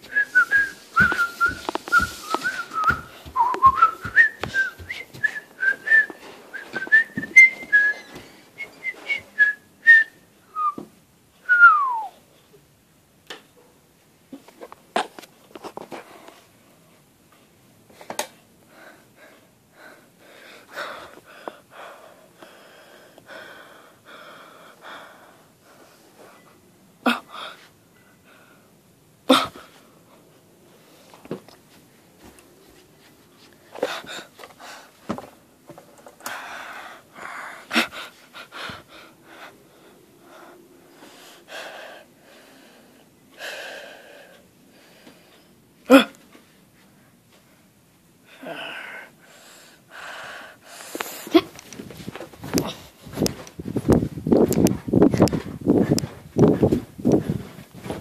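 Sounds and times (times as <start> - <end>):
soft breathing: 18.0 - 26.6, 36.2 - 45.6.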